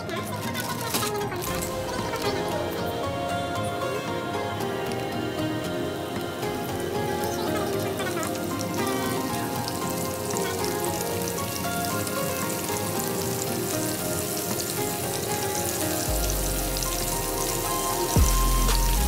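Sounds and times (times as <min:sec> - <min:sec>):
beef sizzling in hot oil: 0:07.3 - 0:19.0.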